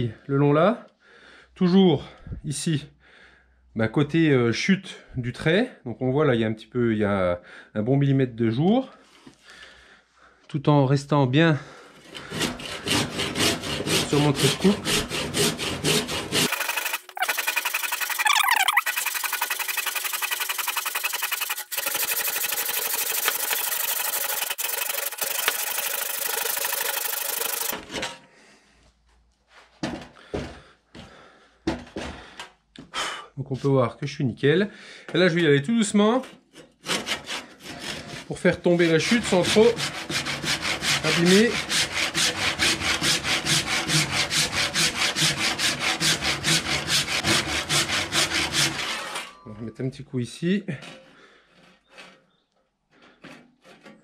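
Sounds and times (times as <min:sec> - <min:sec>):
hand saw rasping through wood: 0:11.9 - 0:28.0, 0:36.2 - 0:49.3, 0:50.9 - 0:54.0.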